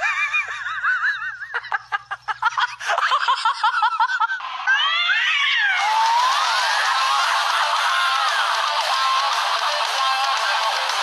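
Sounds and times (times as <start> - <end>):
music: 4.4 - 11.0
cat meowing and yowling: 4.7 - 5.9.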